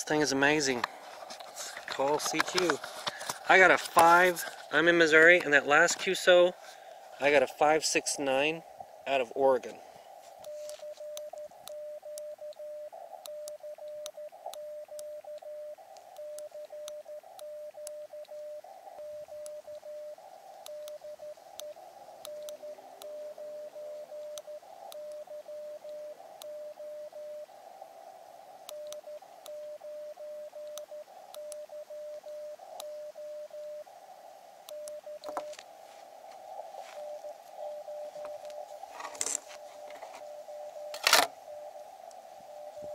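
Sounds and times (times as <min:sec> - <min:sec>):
radio band hiss: 0:00.0 - 0:42.9
morse code tone: 0:10.3 - 0:27.6, 0:28.6 - 0:34.0, 0:34.7 - 0:42.9.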